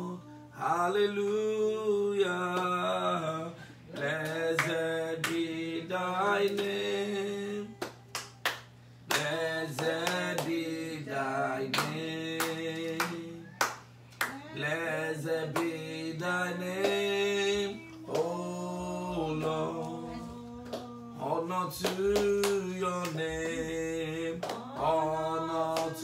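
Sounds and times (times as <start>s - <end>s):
man singing unaccompanied: 0.0s - 7.8s, 9.1s - 13.5s, 14.4s - 26.0s
hand claps: 2.5s - 2.8s, 3.9s - 5.5s, 6.4s - 6.8s, 7.8s - 10.6s, 11.6s - 14.5s, 15.5s - 15.8s, 16.8s - 17.1s, 17.9s - 18.4s, 20.6s - 21.0s, 21.7s - 23.7s, 24.3s - 26.0s.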